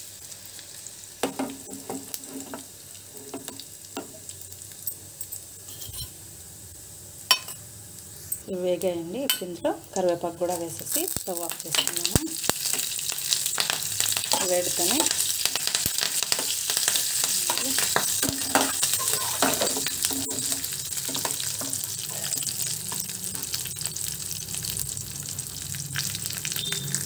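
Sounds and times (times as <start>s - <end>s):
leaves sizzling in hot oil: 0.0s - 27.0s
steel spoon scraping pan: 5.6s - 6.2s, 17.3s - 23.5s.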